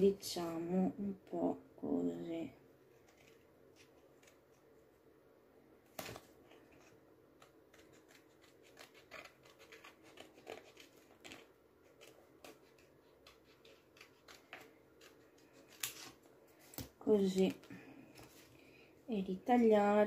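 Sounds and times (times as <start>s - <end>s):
paper rustling: 2.9s - 4.6s, 5.9s - 18.6s
scissors snipping paper: 6.8s - 16.2s.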